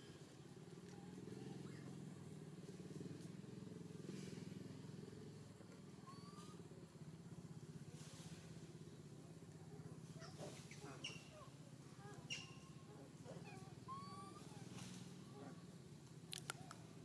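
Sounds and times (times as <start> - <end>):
distant engine drone: 0.0 - 17.0
bird chirps: 10.6 - 11.5, 12.2 - 12.9.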